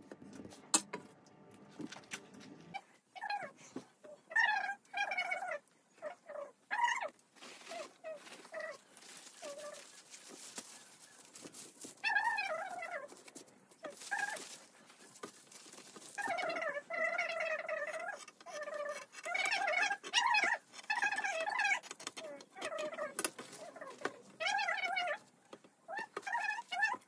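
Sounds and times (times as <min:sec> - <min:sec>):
crepe paper rustling: 0:07.4 - 0:16.8, 0:17.8 - 0:24.3.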